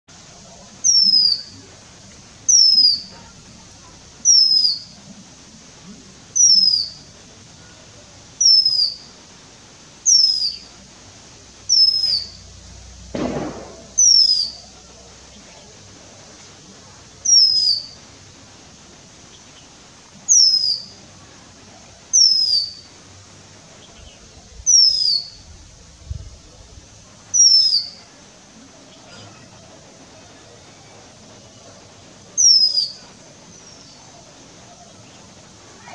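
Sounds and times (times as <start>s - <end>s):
bird whistle sliding downward: 11.7s - 12.4s, 13.6s - 14.6s.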